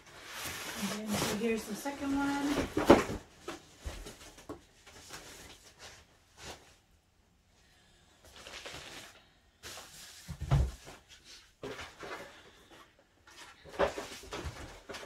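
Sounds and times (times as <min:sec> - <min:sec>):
packaging rustling: 0:00.0 - 0:06.6.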